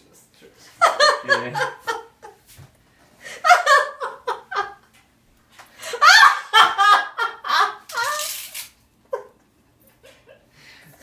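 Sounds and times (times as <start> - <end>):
person laughing: 0.8 - 2.4.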